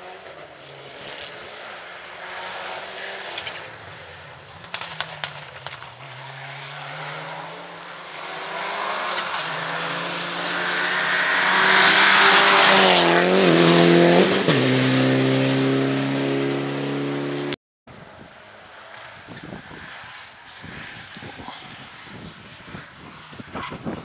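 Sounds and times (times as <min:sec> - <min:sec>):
rally car engine passing at speed: 0:00.0 - 0:17.6.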